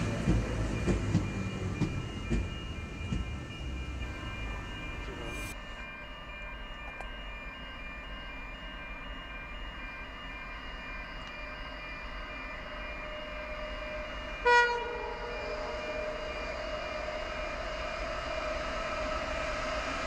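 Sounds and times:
steady ringing tone: 0.0 - 20.0
locomotive horn blast: 14.4 - 15.5.

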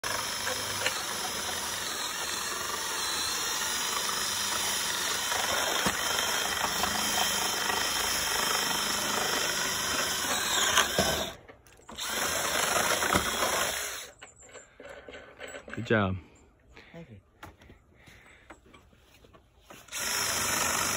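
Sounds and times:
cordless drill boring into wood: 0.0 - 14.2, 19.8 - 20.9.

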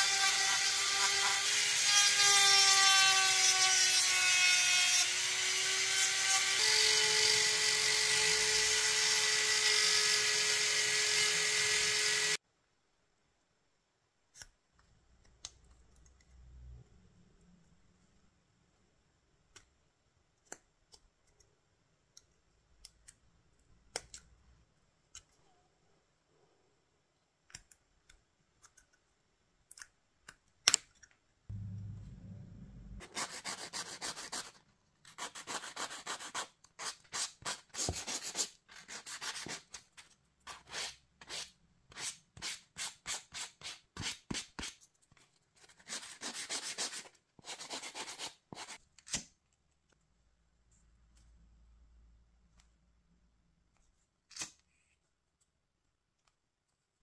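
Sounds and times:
low hum: 31.5 - 33.0.

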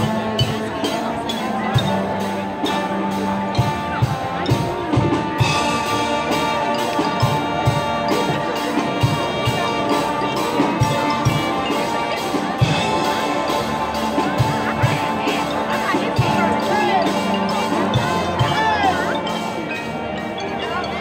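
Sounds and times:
brass holding chords: 0.0 - 21.0
drumline beat: 0.0 - 21.0.

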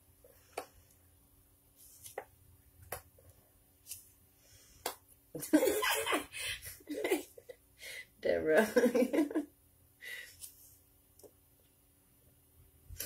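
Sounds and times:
woman speaking: 8.2 - 9.3.

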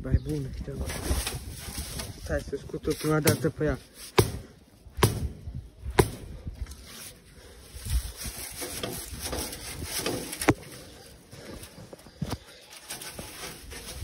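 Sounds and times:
broom brushing and scraping: 0.7 - 4.4, 6.0 - 14.0.

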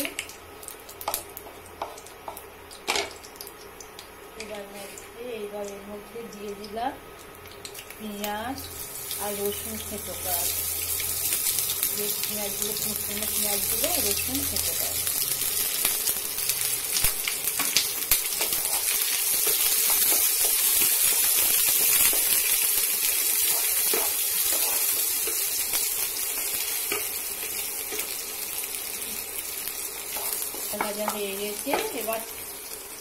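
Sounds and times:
onions sizzling in oil: 0.0 - 33.0
wooden spatula taps and scrapes: 30.1 - 32.0.

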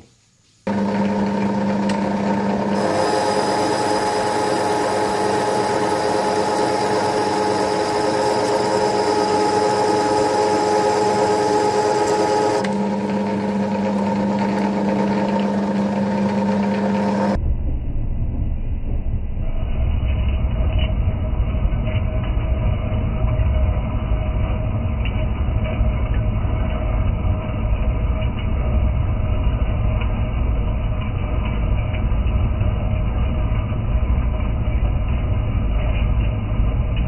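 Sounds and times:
lathe mechanical whine: 0.7 - 17.4.

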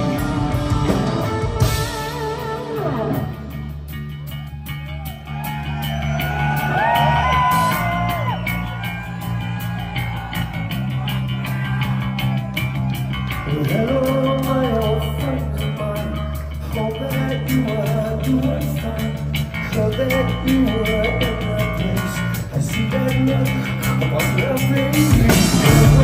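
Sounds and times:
hard rock band playing: 0.0 - 26.0
singer's vocals: 13.3 - 26.0.

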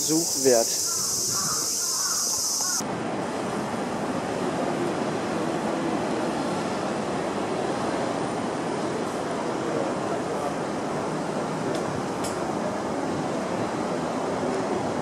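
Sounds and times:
cicadas buzzing: 0.0 - 2.8
city traffic roar: 0.0 - 15.0.

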